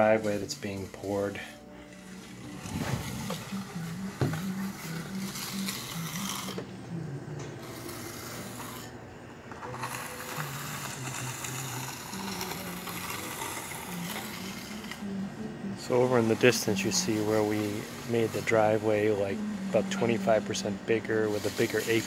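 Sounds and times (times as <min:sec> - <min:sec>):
low hum changing pitch: 0:02.0 - 0:08.2
phone rubbing and rustling: 0:02.3 - 0:06.6.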